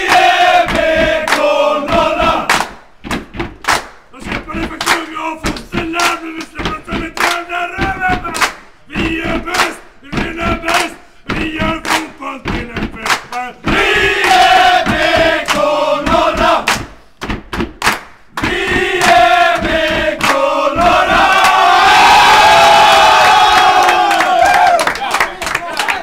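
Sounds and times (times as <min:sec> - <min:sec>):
men singing group chant: 0:00.0 - 0:02.5, 0:04.2 - 0:16.8, 0:18.4 - 0:24.0.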